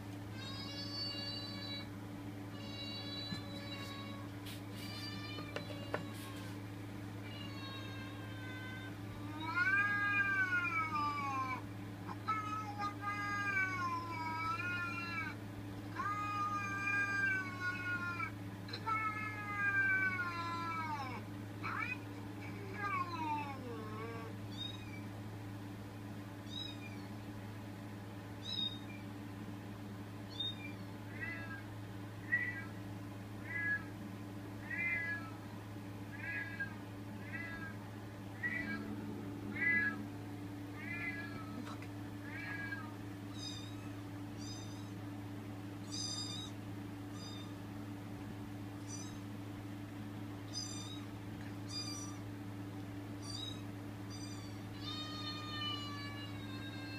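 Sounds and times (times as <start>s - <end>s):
steady low hum: 0.0s - 56.9s
recorded cat meows: 7.3s - 11.6s, 30.4s - 31.6s, 32.3s - 32.8s, 33.4s - 33.9s, 34.6s - 35.4s, 36.1s - 37.8s, 38.4s - 38.9s, 39.5s - 40.0s, 40.8s - 44.9s.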